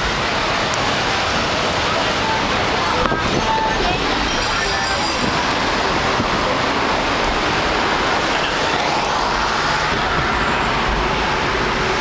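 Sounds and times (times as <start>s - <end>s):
road noise inside moving car: 0.0s - 12.0s.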